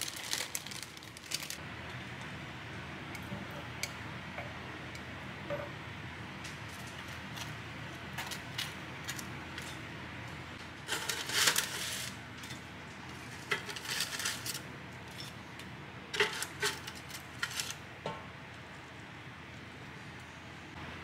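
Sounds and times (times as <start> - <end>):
low kitchen hum: 0.0 - 21.0.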